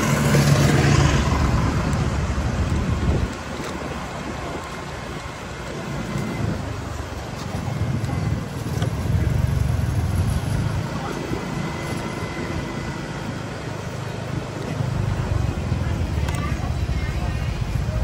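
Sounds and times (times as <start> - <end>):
motorbike engine at low speed: 0.0 - 18.0
road noise: 0.0 - 18.0
wind rumbling on microphone: 0.0 - 18.0.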